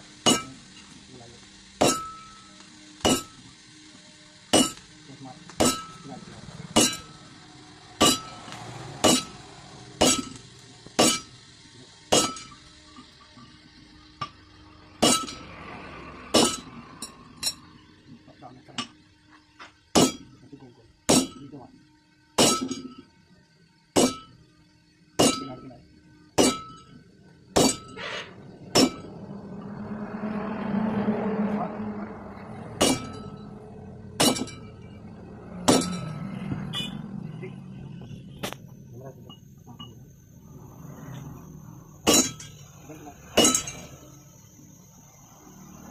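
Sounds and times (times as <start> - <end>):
sledgehammer striking iron on anvil: 0.2 - 0.6, 1.8 - 2.4, 3.0 - 3.4, 4.5 - 4.9, 5.6 - 6.2, 6.8 - 7.2, 8.0 - 9.4, 10.0 - 10.4, 11.0 - 11.3, 12.1 - 12.6, 15.0 - 15.5, 16.3 - 17.6, 19.9 - 20.4, 21.1 - 21.5, 22.4 - 23.0, 24.0 - 24.4, 25.2 - 25.7, 26.4 - 27.0, 27.6 - 28.1, 28.7 - 29.1, 32.8 - 33.4, 34.2 - 34.8, 35.6 - 36.2, 42.0 - 42.6, 43.3 - 43.9.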